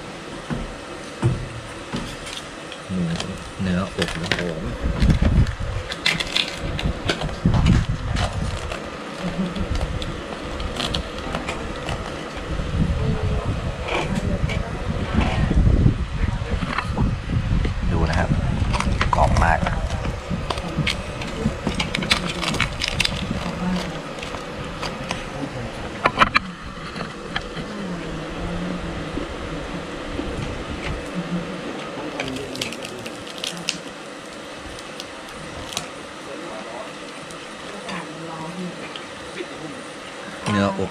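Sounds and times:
steady hum: 0.0 - 40.9
crackling pork skin: 2.2 - 12.5, 18.7 - 25.4, 32.1 - 37.8
murmur of background voices: 9.0 - 33.9.

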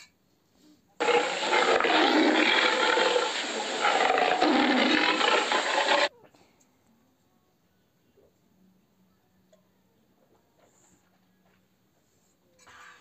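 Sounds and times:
cougar call: 1.0 - 6.1.

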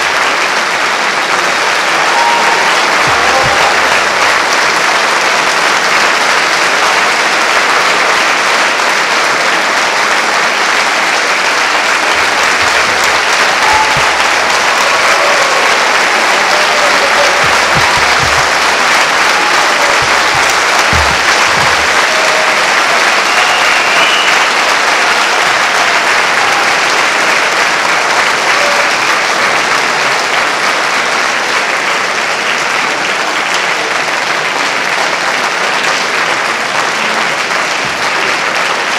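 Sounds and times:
audience applauding: 0.0 - 38.9.

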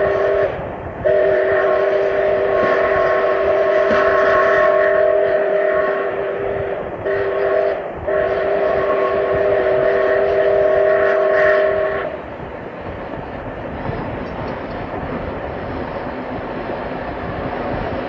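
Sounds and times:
steam whistle chord: 0.0 - 12.2
train rumbling: 0.0 - 18.0.

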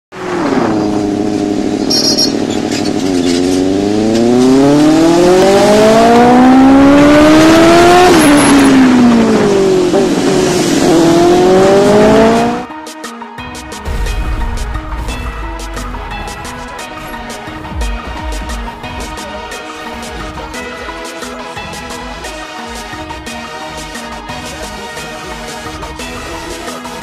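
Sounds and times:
vehicle engine revving: 0.1 - 12.7.

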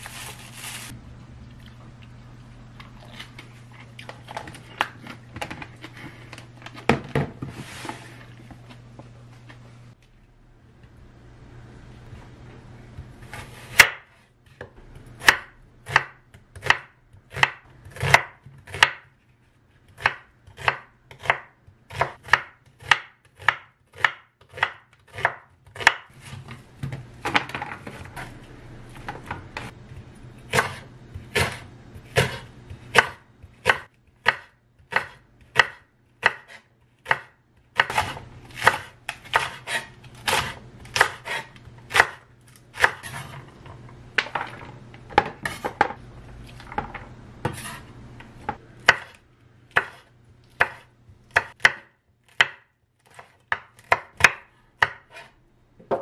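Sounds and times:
knife chopping on wooden board: 13.3 - 19.1, 20.0 - 27.0, 30.5 - 42.2, 48.5 - 55.3.

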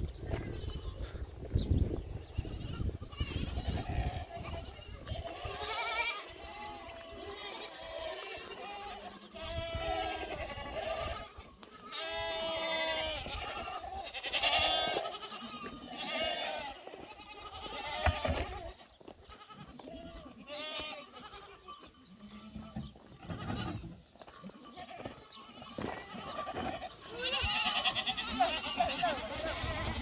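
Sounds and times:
livestock bleating: 0.3 - 1.2, 2.2 - 30.0.

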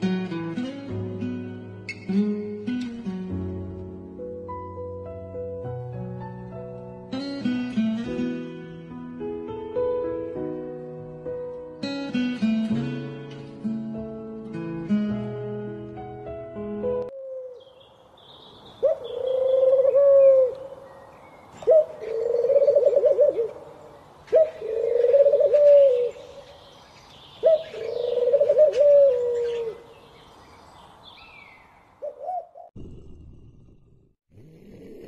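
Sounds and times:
small birds chirping: 17.5 - 32.8
pigeons cooing: 18.8 - 20.8, 21.6 - 26.5, 27.4 - 29.9, 32.0 - 33.2.

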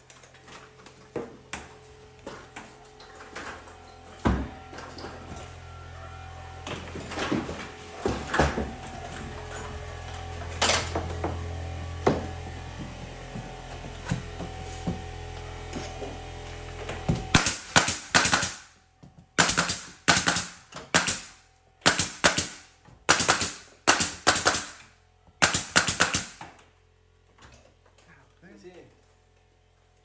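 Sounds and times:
steady low hum: 0.0 - 30.0
nail gun firing: 17.3 - 18.7, 19.4 - 26.5.

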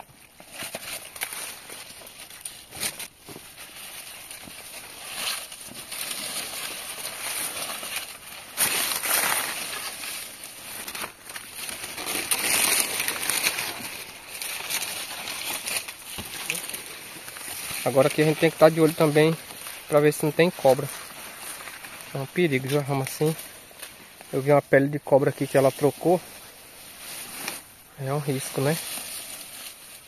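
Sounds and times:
dry corn leaves rustling: 0.0 - 30.0.

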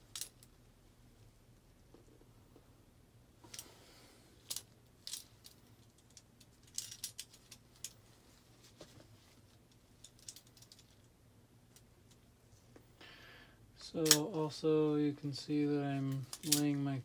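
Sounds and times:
low steady hum: 0.0 - 17.0.

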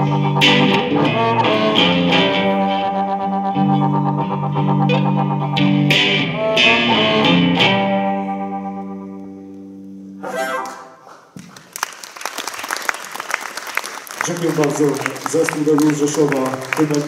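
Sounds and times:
harmonica: 0.0 - 5.6
electric guitar blues chords: 0.0 - 11.0
audience applause: 11.3 - 17.0.

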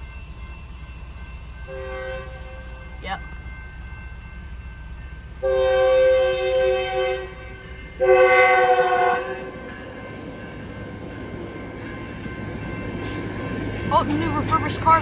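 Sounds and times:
train running rumble: 0.0 - 15.0
train horn blasts: 1.7 - 3.0, 5.4 - 9.7.

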